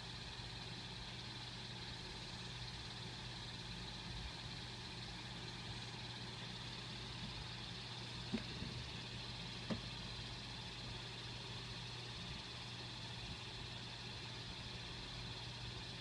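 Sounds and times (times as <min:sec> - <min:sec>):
steady low hum with hiss: 0:00.0 - 0:16.0.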